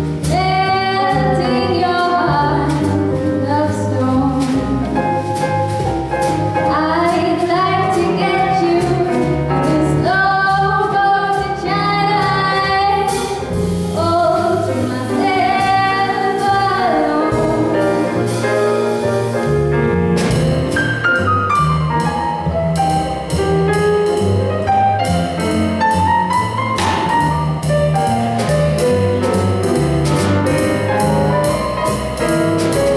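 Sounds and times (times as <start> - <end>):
double bass: 0.0 - 32.9
drum kit: 0.0 - 32.9
piano: 0.0 - 32.9
woman singing jazz: 0.1 - 19.0.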